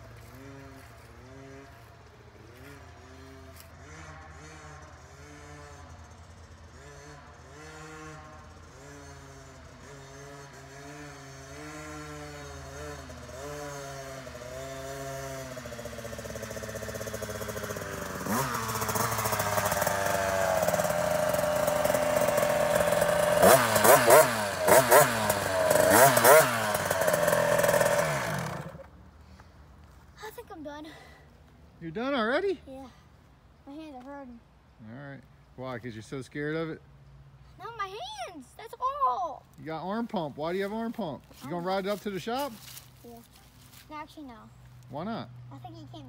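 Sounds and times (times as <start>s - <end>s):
dirt bike engine revving: 0.0s - 29.0s
engine throttle blips: 0.0s - 29.0s.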